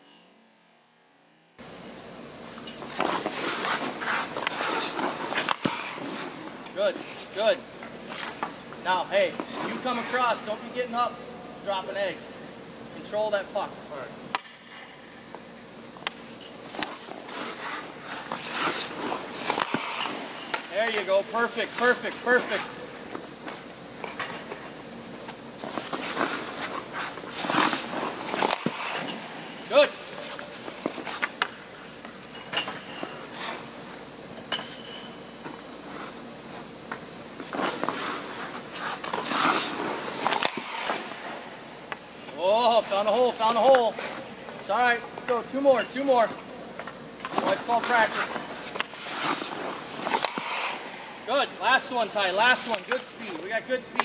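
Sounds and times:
sticks and pucks clacking on ice: 2.7 - 7.4, 16.0 - 33.6, 36.9 - 46.1, 46.8 - 54.0
skate blades scraping ice: 2.8 - 10.8, 16.0 - 34.0, 37.4 - 44.8, 47.2 - 54.0.

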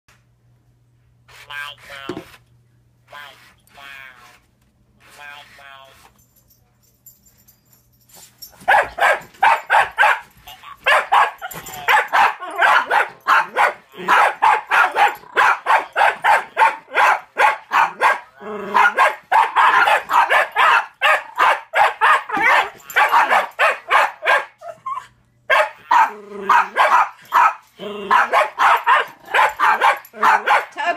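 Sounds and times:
dog barking rapidly: 8.7 - 24.6, 25.5 - 30.9.

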